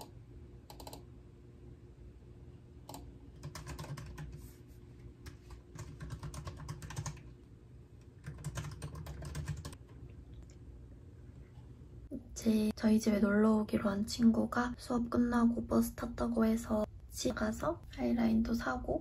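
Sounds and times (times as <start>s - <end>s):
typing on laptop keyboard: 0.7s - 1.0s, 2.9s - 4.4s, 5.2s - 7.3s, 8.2s - 9.8s.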